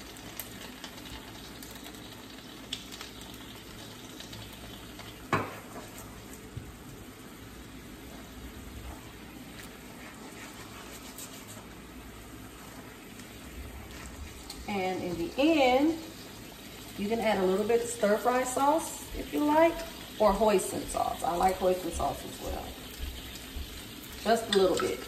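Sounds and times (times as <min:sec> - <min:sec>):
sauce simmering in a skillet: 0:00.0 - 0:25.0
spatula stirring sauce: 0:09.5 - 0:12.0.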